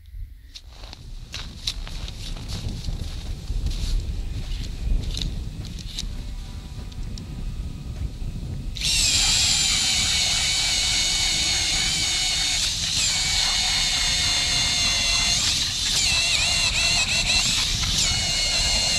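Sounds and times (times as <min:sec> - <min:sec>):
electric drill motor whining: 0:08.8 - 0:18.9.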